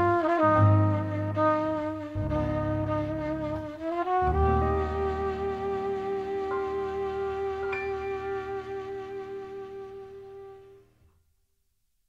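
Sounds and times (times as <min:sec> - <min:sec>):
low bass line: 0:00.0 - 0:09.8
trumpet playing long notes: 0:00.0 - 0:10.8.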